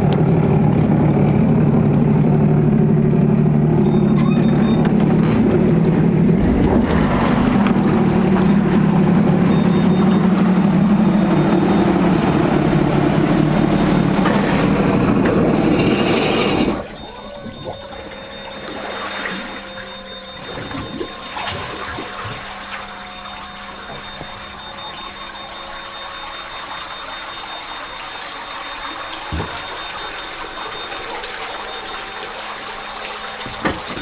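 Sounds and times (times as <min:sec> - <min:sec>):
jet ski engine running: 0:00.0 - 0:34.0
water sloshing around hull: 0:00.0 - 0:34.0
faint steady hum: 0:15.2 - 0:34.0.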